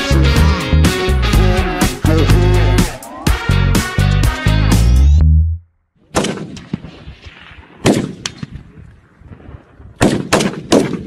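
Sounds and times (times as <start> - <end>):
rifle shots echoing: 6.1 - 8.7, 10.0 - 11.0.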